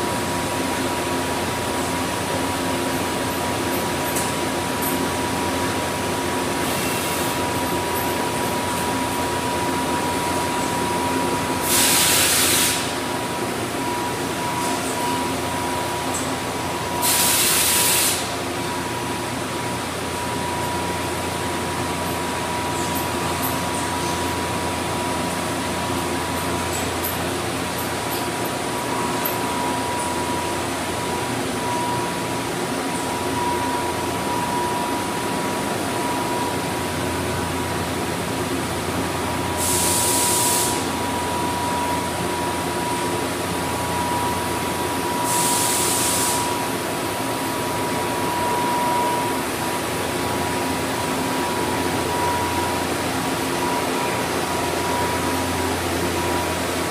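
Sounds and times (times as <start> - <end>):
machine shop equipment humming: 0.0 - 56.9
thin steady whine: 0.0 - 56.9
short bursts of hissing: 11.6 - 13.0, 17.0 - 18.3.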